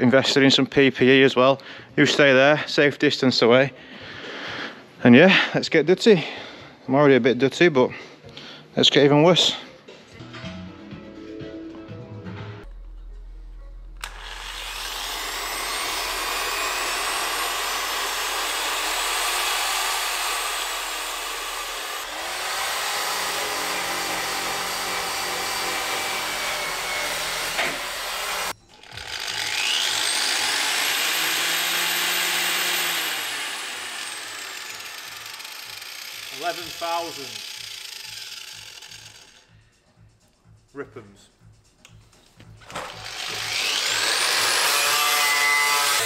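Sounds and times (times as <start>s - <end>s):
angle grinder whine: 13.8s - 39.4s, 42.9s - 46.0s
rotary polisher grinding metal: 14.0s - 39.4s, 42.9s - 46.0s.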